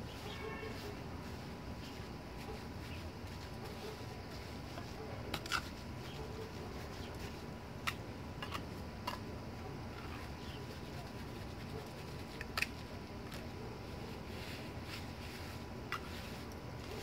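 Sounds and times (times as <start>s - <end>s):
steady background noise: 0.0s - 17.0s
trowel scraping and tapping cement: 15.9s - 17.0s.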